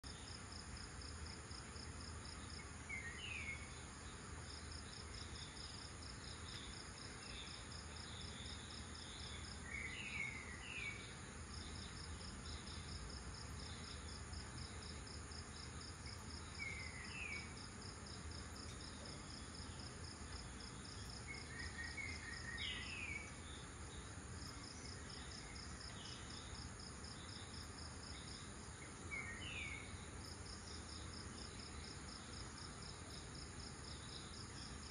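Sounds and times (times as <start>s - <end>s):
faint low hum: 0.0s - 34.9s
thin steady buzz: 0.0s - 34.9s
insects trilling: 0.1s - 34.9s
bird chirping: 1.7s - 34.9s.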